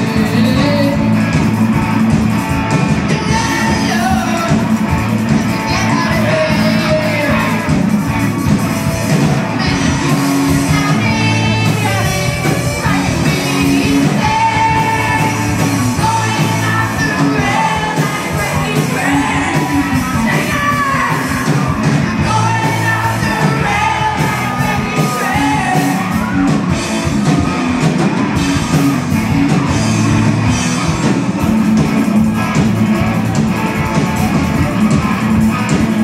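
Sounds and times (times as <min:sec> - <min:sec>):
person singing: 0:00.0 - 0:01.2, 0:03.1 - 0:04.7, 0:05.4 - 0:07.7, 0:09.6 - 0:26.7
bass guitar: 0:00.0 - 0:36.0
drums: 0:00.0 - 0:36.0
electric guitars: 0:00.0 - 0:36.0.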